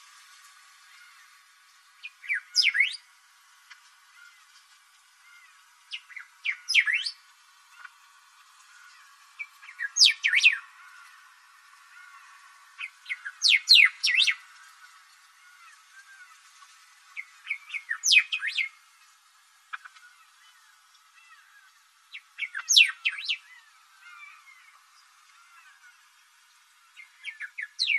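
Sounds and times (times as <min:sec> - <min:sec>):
bird singing high sweeping notes: 0:02.0 - 0:03.1, 0:05.2 - 0:07.2, 0:08.7 - 0:11.2, 0:11.8 - 0:16.5, 0:17.1 - 0:18.9, 0:19.7 - 0:26.2, 0:26.8 - 0:27.9.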